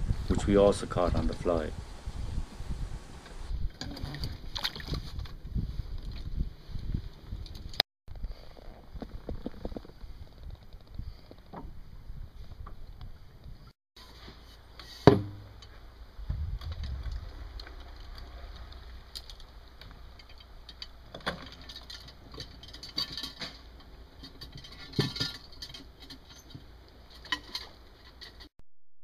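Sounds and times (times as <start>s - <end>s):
wind rumble on microphone: 0.0s - 13.7s, 16.0s - 20.1s.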